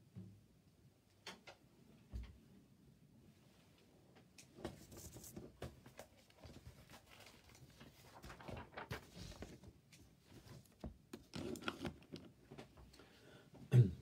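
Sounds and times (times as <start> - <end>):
small clicks and knocks: 1.1 - 2.4.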